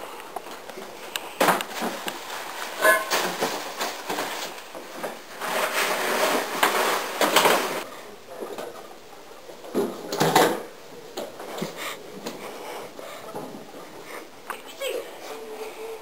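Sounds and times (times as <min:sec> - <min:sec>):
rustling: 0:00.1 - 0:16.0
knocks and thumps on plastic bins: 0:01.4 - 0:07.8.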